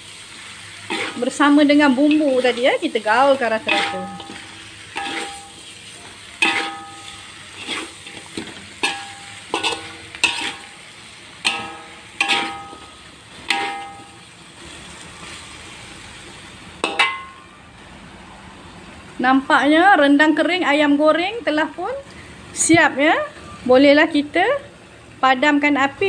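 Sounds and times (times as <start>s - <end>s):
faint sizzle of frying paste: 0.0s - 26.0s
metal spatula scraping a wok: 0.2s - 15.5s.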